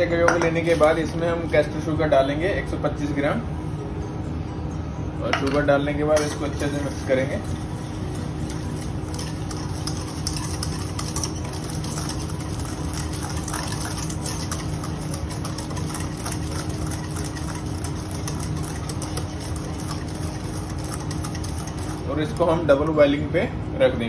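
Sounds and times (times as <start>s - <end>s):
steady machine hum: 0.0s - 24.0s
whisk clicking against metal bowl: 8.4s - 22.9s.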